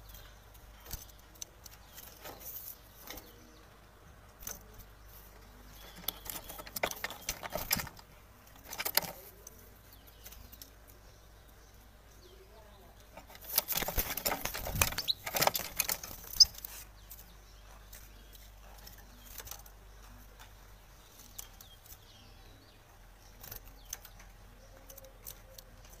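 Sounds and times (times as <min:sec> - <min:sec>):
bird wings flapping: 0:13.4 - 0:16.6.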